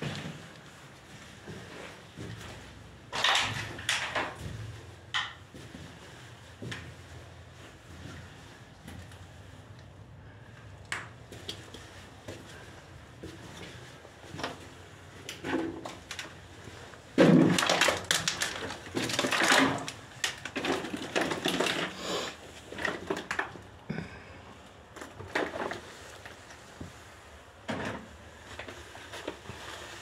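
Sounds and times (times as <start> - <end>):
footsteps crunching over rubble: 11.2 - 23.8.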